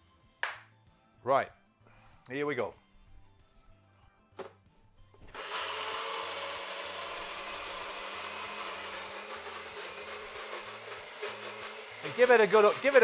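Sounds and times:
blender running: 5.3 - 13.0.

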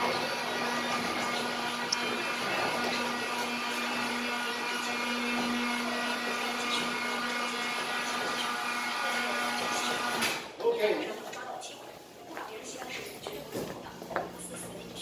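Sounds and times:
steady machine hum: 0.0 - 10.2.

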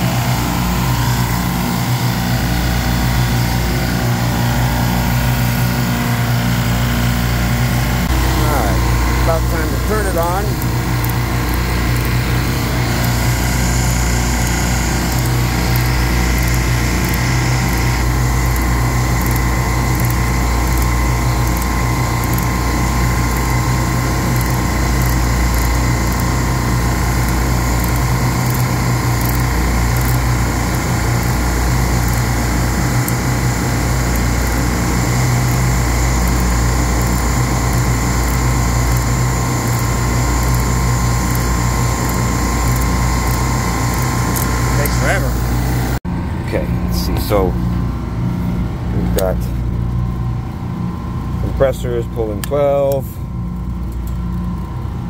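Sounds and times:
refrigeration compressors droning: 0.0 - 55.0
ratcheting wrench clicks: 10.2 - 12.2, 13.0 - 32.4, 34.0 - 44.6.

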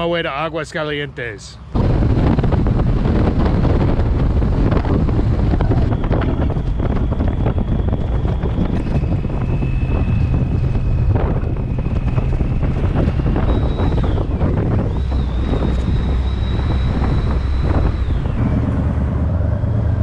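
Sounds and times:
motorcycle road noise: 1.6 - 20.0
wind buffeting microphone: 1.6 - 20.0
thin high whistle: 5.6 - 18.7.

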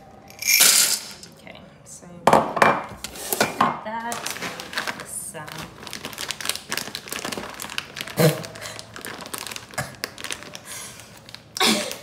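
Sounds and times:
plastic packet crinkling: 4.1 - 12.0.

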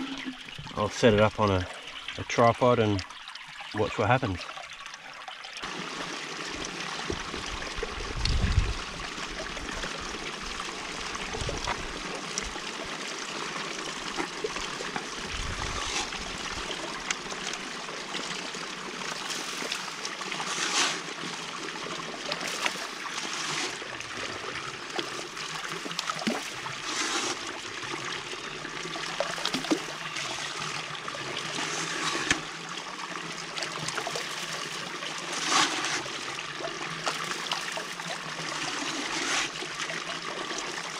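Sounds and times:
water swirling and draining: 0.0 - 40.9
splash: 19.1 - 21.2, 25.0 - 27.6, 29.2 - 30.4, 33.8 - 36.1.

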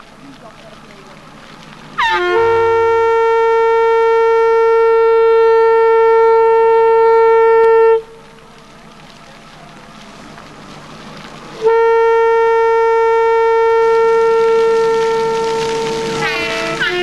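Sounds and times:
horn long steady note: 2.0 - 8.2, 11.6 - 17.0.

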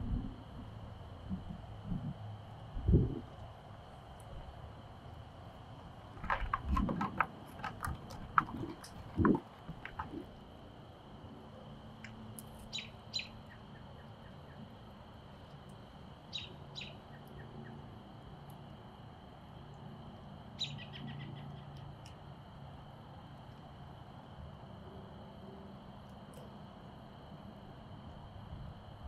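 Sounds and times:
bird chirping: 12.6 - 14.6, 16.3 - 17.8, 20.6 - 21.6.

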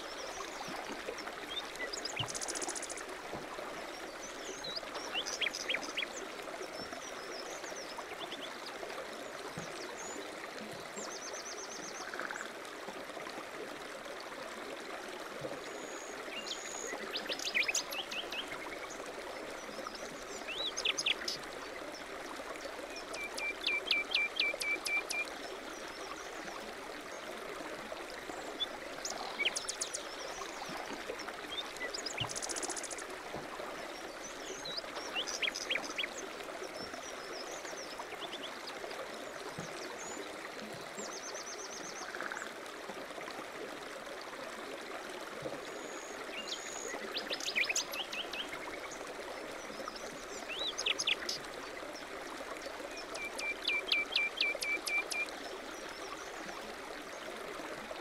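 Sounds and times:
songbirds chirping: 0.0 - 8.9, 28.2 - 42.2
stream babbling: 0.0 - 58.0.

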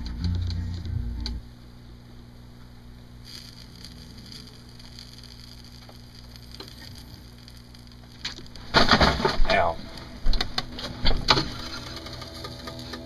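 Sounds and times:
low steady hum: 0.0 - 13.0
sandwich sizzling in a pan: 3.1 - 8.9.

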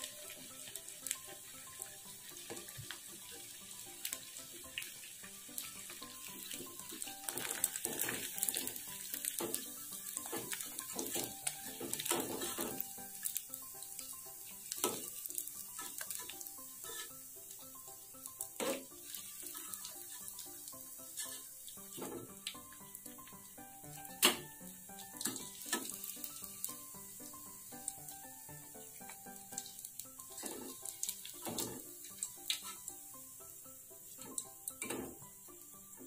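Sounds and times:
oil sizzling: 0.0 - 36.0
metal utensil clicks and pops: 24.0 - 26.0, 30.3 - 33.0.

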